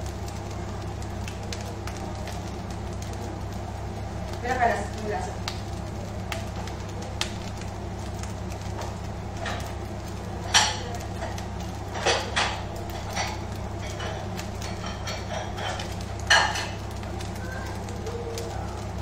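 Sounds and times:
steady low hum: 0:00.0 - 0:19.0
dishes and utensils clattering: 0:10.5 - 0:16.8.

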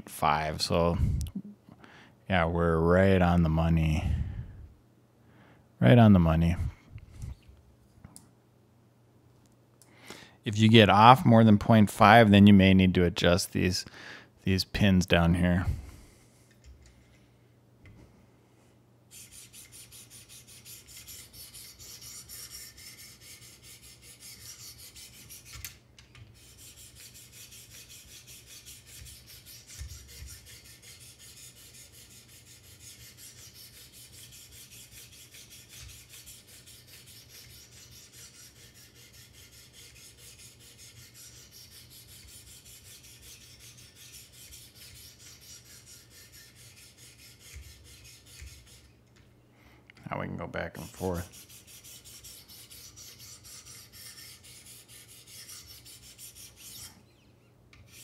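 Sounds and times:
knife blade scraping on abrasive: 0:19.1 - 0:49.0, 0:50.8 - 0:58.0.

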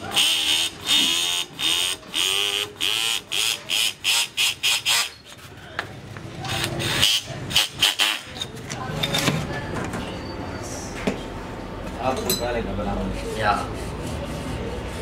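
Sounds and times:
sandpaper rasping against metal: 0:02.4 - 0:05.4, 0:13.2 - 0:15.0.

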